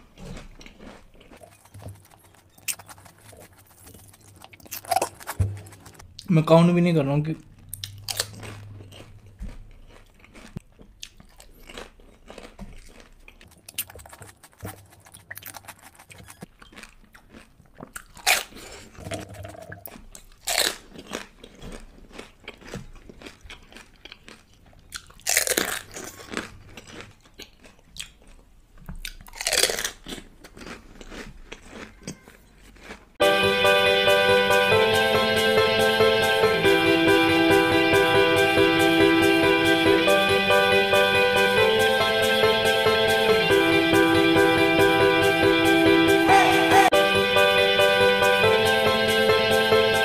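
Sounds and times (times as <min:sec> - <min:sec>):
crunching and chewing: 0:00.0 - 0:06.3, 0:07.3 - 0:33.2
plucked guitar music: 0:33.2 - 0:50.0.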